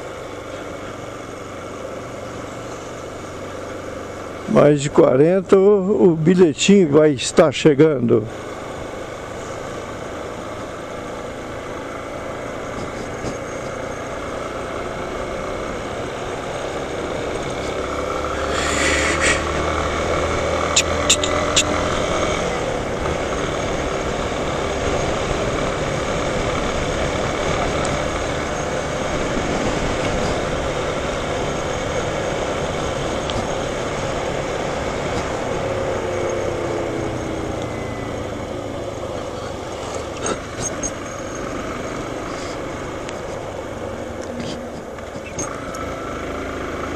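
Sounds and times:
wind and road noise: 0.0s - 46.9s
motorcycle engine running: 8.3s - 46.9s.

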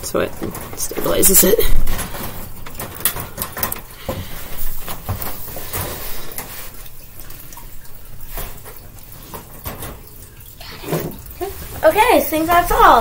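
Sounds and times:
wire cage mesh rattling: 0.2s - 6.6s.

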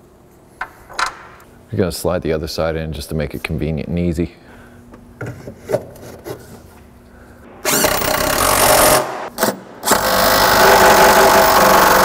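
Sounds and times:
cordless driver running a bolt: 9.9s - 12.0s.

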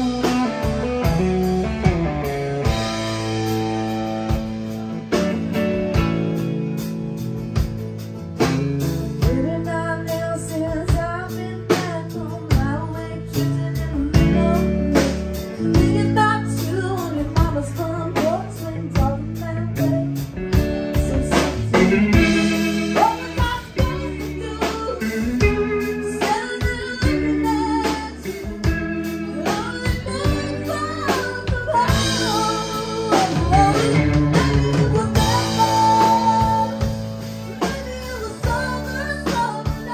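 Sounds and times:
woman singing: 0.0s - 1.2s, 9.2s - 39.9s
drums: 0.0s - 39.9s
electric bass: 0.0s - 39.9s.

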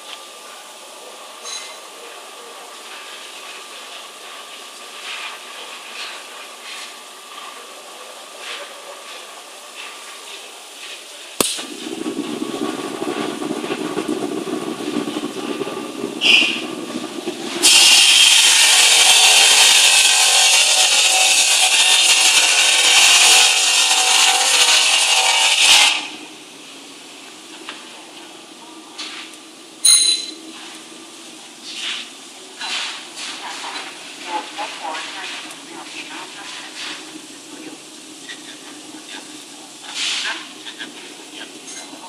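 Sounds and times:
harsh steady machine noise: 0.0s - 42.0s
air hiss: 2.8s - 13.8s, 15.4s - 26.3s, 34.9s - 41.5s
electric motor humming: 17.6s - 26.1s.

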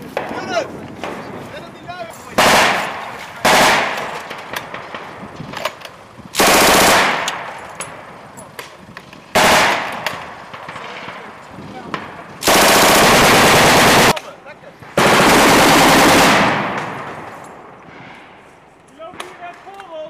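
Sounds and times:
machine-gun fire bursts: 2.4s - 5.1s, 6.4s - 7.5s, 9.3s - 10.0s, 12.4s - 14.2s, 15.0s - 17.3s.

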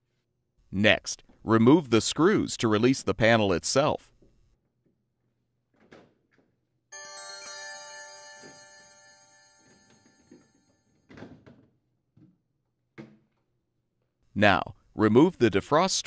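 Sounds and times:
bright bell-like chime: 6.9s - 11.0s.

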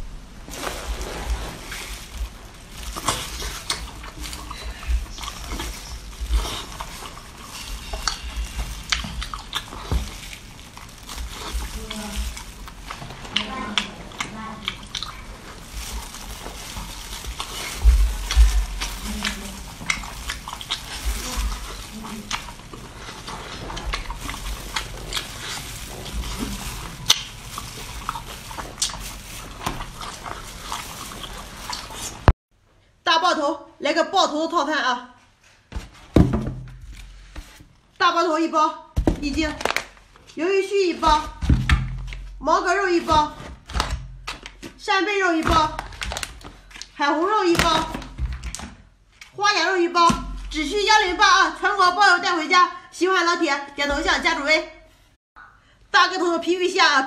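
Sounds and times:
wet mouth eating sounds: 0.6s - 32.3s
chewing clicks: 12.4s - 15.2s.

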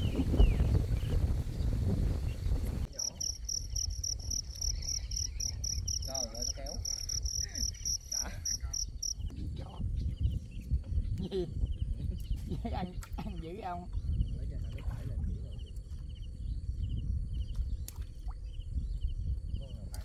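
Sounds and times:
cricket chirping: 2.9s - 9.3s.

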